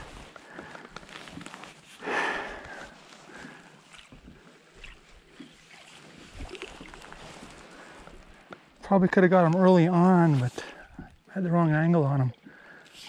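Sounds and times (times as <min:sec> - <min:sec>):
jacket fabric rustling: 0:00.0 - 0:03.9.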